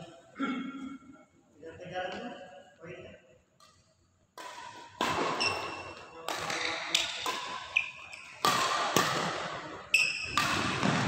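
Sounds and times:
rackets hitting shuttlecock: 3.6s - 11.0s.

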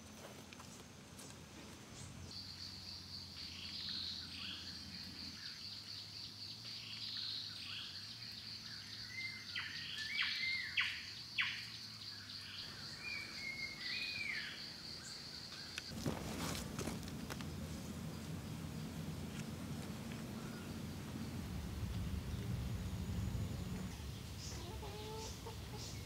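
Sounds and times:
birds chirping and whistling: 2.3s - 15.2s.

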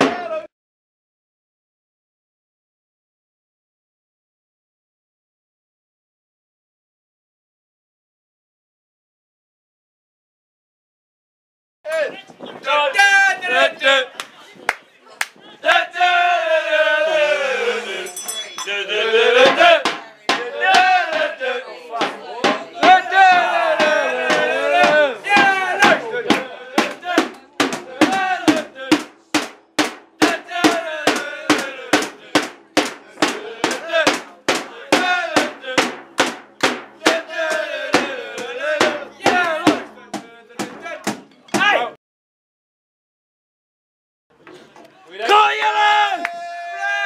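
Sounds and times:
supporters chanting and singing: 0.0s - 0.5s, 12.6s - 14.4s, 15.4s - 41.9s
sharp drum hits: 22.0s - 41.7s.

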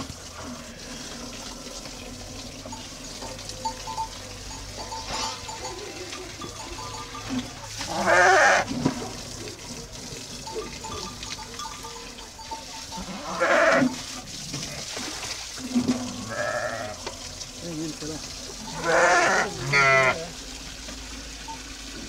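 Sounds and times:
sheep bleating: 4.8s - 8.7s, 12.9s - 14.0s, 16.3s - 17.0s, 18.7s - 20.3s.

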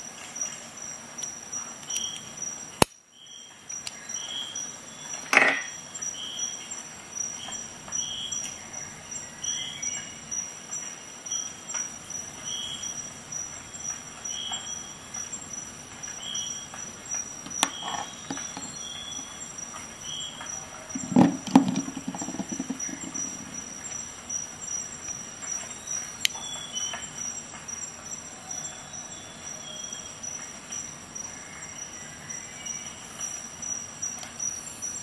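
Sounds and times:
faint high chirp: 17.5s - 21.2s.

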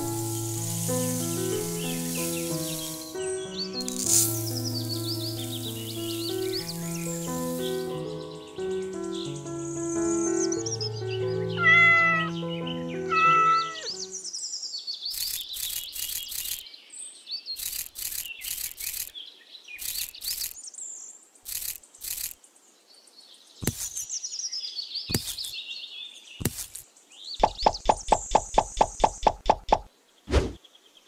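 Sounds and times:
beans clicking onto sand and plastic: 0.0s - 3.2s, 3.9s - 7.8s, 15.1s - 16.6s, 17.6s - 19.1s, 19.8s - 20.6s, 21.4s - 22.4s, 23.6s - 24.1s, 25.1s - 25.6s, 26.4s - 29.9s
music: 0.0s - 14.2s
birds chirping: 0.0s - 31.0s.

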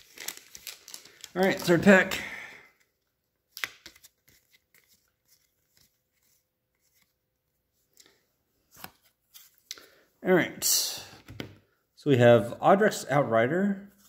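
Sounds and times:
wrapper ripping: 0.0s - 2.0s
cards rustling: 0.0s - 9.9s.

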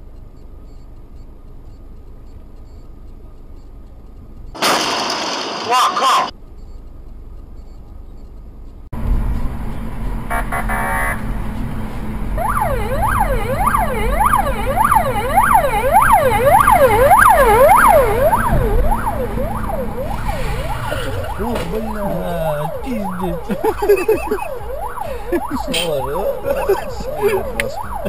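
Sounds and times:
car driving rumble: 9.0s - 28.0s
police siren sweeping: 12.4s - 28.0s.

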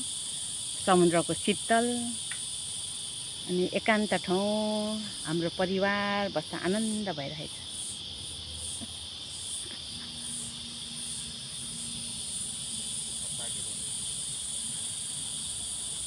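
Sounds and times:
insect chorus shrilling: 0.0s - 16.0s.

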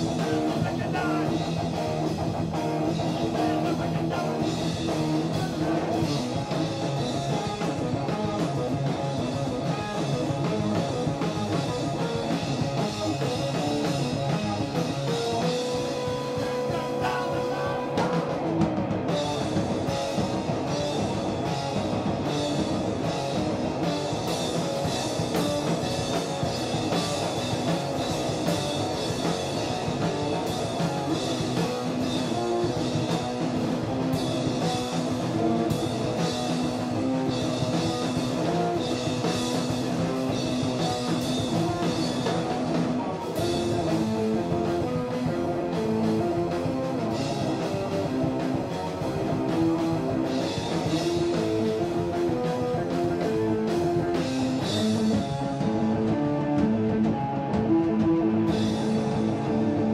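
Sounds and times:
drum kit: 0.0s - 59.9s
electric guitar: 0.0s - 59.9s.

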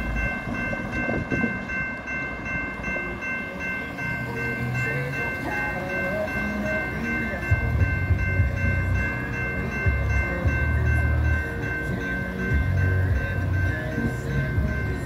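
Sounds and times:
car road noise: 0.0s - 15.0s
electronic crossing bell ringing: 0.0s - 15.0s.

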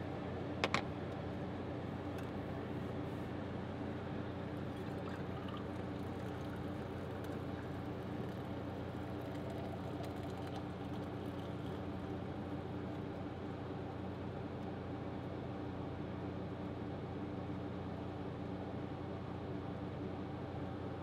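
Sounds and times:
air conditioner humming: 0.0s - 21.0s
liquid pouring into bottle: 4.5s - 12.3s.

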